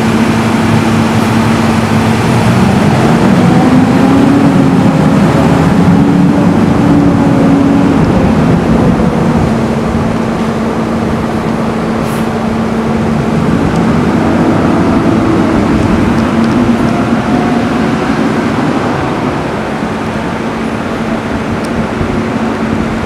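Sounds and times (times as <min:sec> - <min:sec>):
truck diesel engine pulling away: 0:00.0 - 0:23.0.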